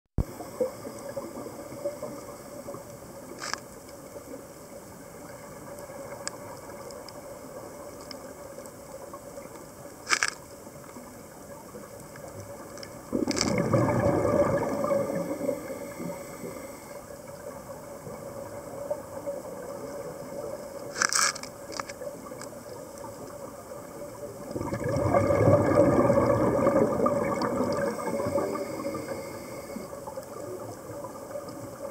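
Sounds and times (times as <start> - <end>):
regulator exhaling bubbles: 13.1 - 16.6, 24.5 - 29.9
steady hum: 27.6 - 29.9.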